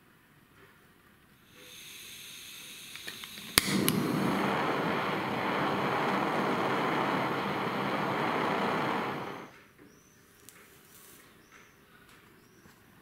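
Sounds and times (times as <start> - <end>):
flame torch hissing: 1.4 - 9.5
torch igniter click: 1.6 - 9.5.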